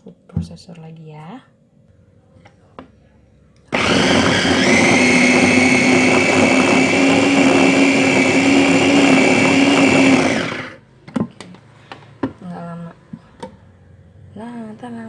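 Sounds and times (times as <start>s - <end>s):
food processor motor whining: 3.7s - 10.8s.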